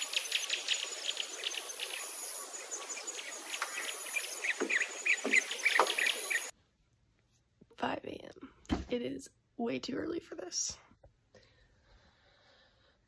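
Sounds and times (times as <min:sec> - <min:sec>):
bird chirps: 0:00.0 - 0:06.5.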